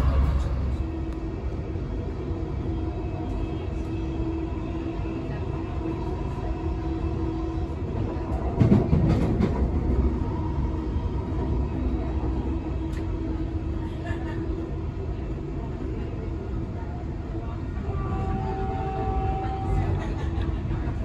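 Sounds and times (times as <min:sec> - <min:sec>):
train rattling and knocking: 0:00.0 - 0:01.6, 0:05.2 - 0:16.8
train wheels rumbling on rail: 0:00.0 - 0:21.0.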